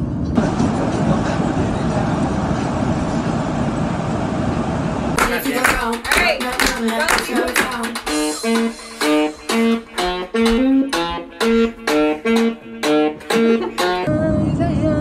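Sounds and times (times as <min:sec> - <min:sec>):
plucked guitar melody: 0:06.8 - 0:14.1.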